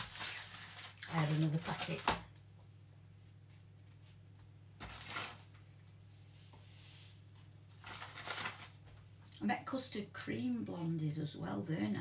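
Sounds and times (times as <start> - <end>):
plastic packet rustle: 0.0 - 2.3, 4.8 - 5.6, 7.7 - 9.0
steady low hum: 0.8 - 12.0.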